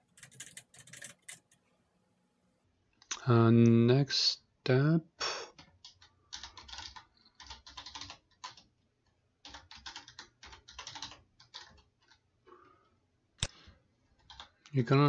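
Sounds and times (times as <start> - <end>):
faint keyboard typing: 0.0 - 1.7, 5.5 - 14.8.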